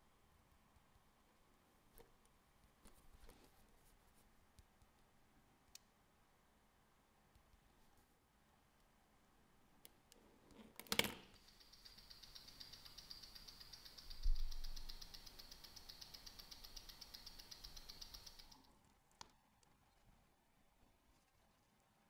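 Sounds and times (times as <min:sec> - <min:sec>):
fast watch ticking: 0:11.4 - 0:18.7.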